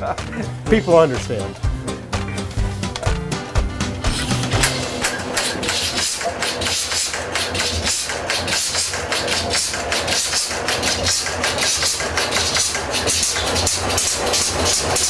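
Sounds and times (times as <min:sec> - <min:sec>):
stationary engine knocking: 0:05.4 - 0:15.0.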